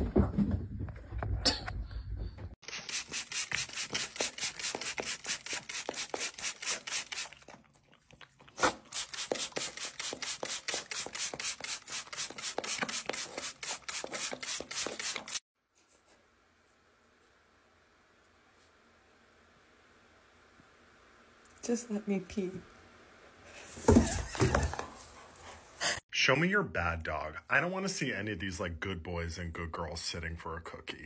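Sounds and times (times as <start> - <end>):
dog licking rapidly: 2.9 - 15.3.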